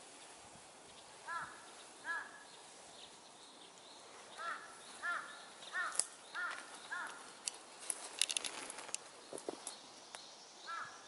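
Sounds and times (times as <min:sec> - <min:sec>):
crow cawing: 0:01.2 - 0:02.4, 0:04.4 - 0:07.3, 0:10.7 - 0:11.0.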